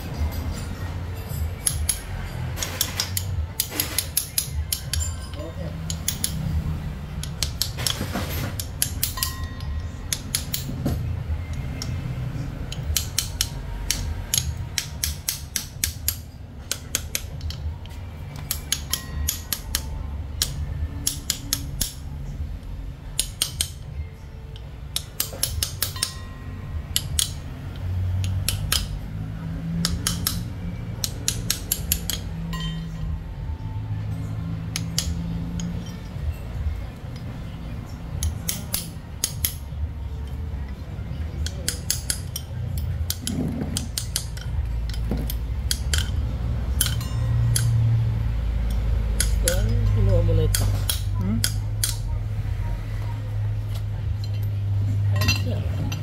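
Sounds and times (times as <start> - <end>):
low steady hum: 0.0 - 56.0
socket ratchet clicking: 1.6 - 10.9, 11.5 - 22.4, 23.0 - 33.1, 34.6 - 36.3, 38.2 - 40.4, 41.4 - 52.1.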